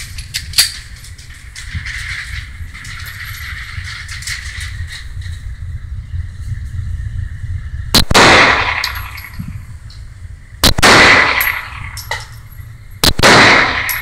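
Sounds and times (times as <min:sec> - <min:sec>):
pistol shots echoing indoors: 0:10.6 - 0:12.2, 0:13.0 - 0:14.0.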